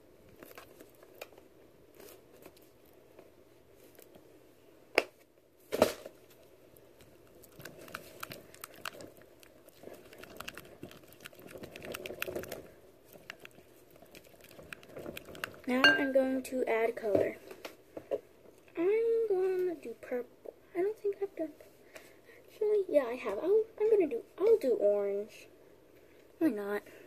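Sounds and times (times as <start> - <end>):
spatula stirring sticky mix: 6.9 - 15.8.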